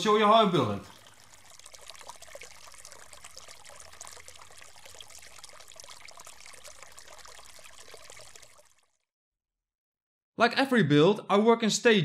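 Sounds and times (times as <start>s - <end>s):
water trickling and splashing: 0.0s - 9.1s.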